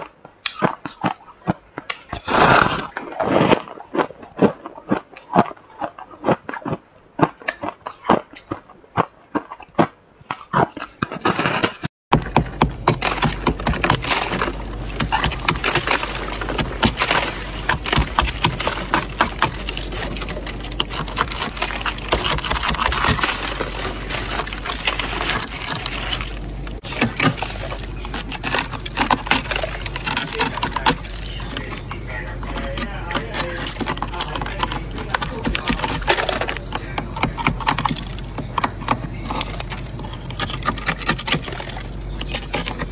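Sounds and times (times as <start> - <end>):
frost crunching: 0.0 - 9.9, 10.5 - 42.9
fingers scraping frost: 2.1 - 3.7, 11.1 - 42.9
steady low hum: 12.1 - 42.9.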